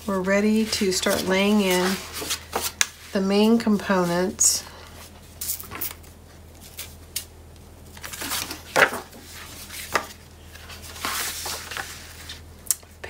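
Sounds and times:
paper rustling: 0.0 - 3.6, 7.9 - 12.4.

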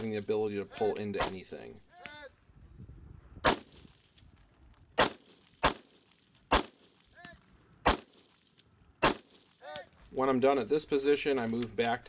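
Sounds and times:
rifle shots: 3.4 - 4.1, 5.0 - 9.6.

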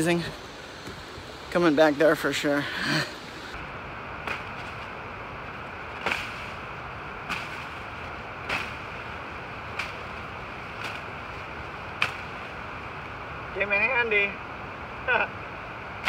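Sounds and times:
machete hacking through grass: 4.2 - 4.8, 6.0 - 6.6, 7.2 - 9.0, 9.7 - 10.1, 12.0 - 12.3.

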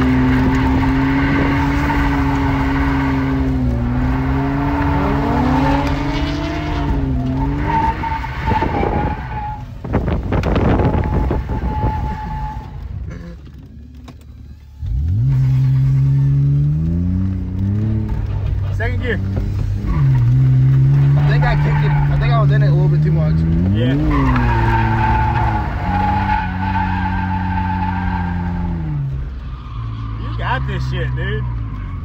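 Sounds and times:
tyres squealing: 0.0 - 9.7, 18.7 - 32.0
car engine revving: 0.0 - 32.0.

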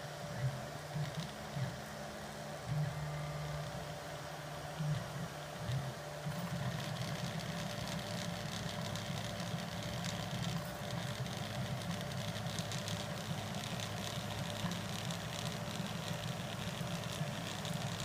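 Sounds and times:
printer stepper motors buzzing: 0.0 - 18.0
rapid ticks: 6.4 - 18.0.

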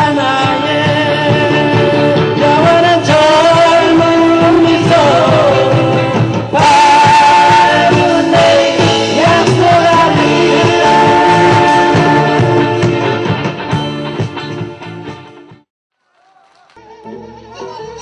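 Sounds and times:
person singing: 0.0 - 13.0
live rock band playing: 0.0 - 15.6.

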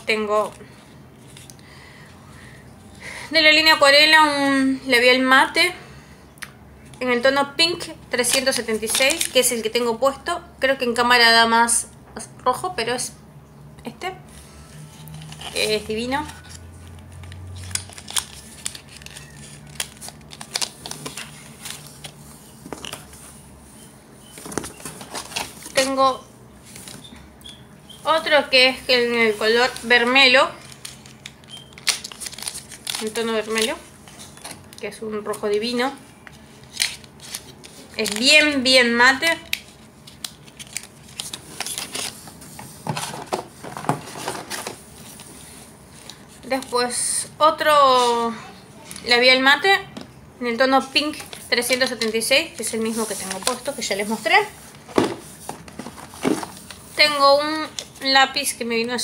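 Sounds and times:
rummaging in cardboard box: 24.4 - 26.0, 40.6 - 45.3, 51.1 - 57.2.

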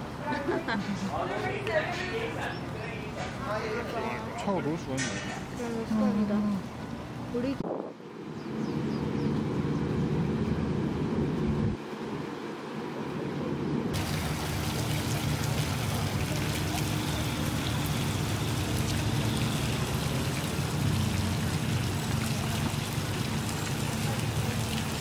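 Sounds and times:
fountain water splashing: 14.0 - 25.0.

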